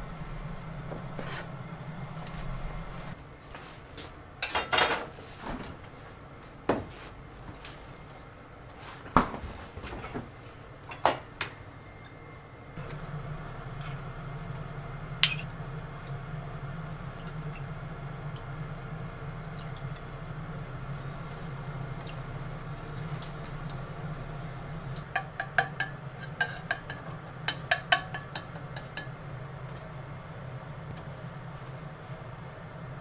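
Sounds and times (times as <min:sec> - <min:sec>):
steady low hum: 0:00.0 - 0:03.4, 0:09.9 - 0:33.0.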